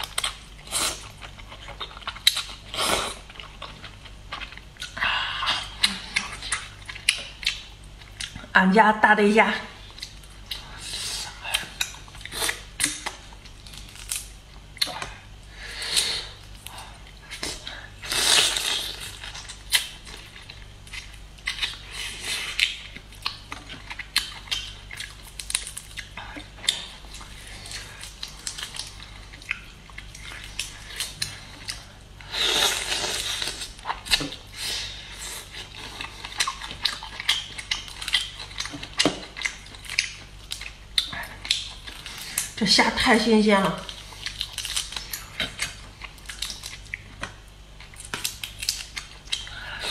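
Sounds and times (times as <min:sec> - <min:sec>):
prawn shells cracking: 0:12.8 - 0:14.3.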